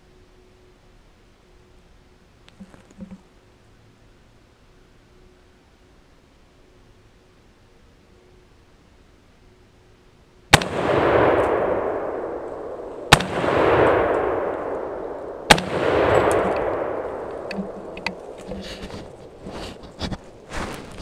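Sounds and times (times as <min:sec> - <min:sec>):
gunshots with rolling echo: 0:10.5 - 0:19.8.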